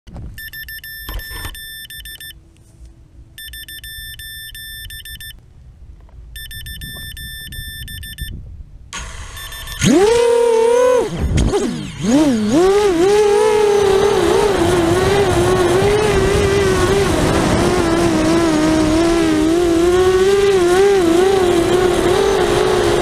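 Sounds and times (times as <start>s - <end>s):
drone electronics beeping: 0.4s - 2.4s, 3.4s - 5.4s, 6.4s - 8.4s, 9.2s - 12.0s
drone motors whining: 9.0s - 23.0s.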